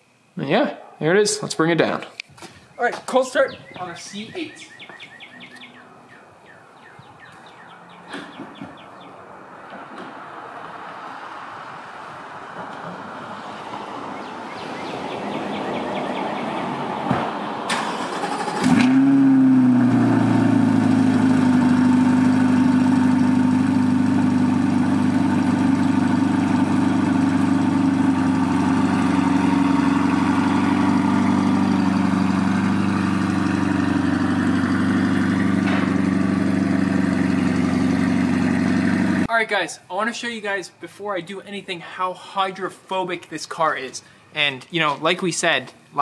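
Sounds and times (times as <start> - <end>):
car engine starting and idling: 17.6 - 39.3.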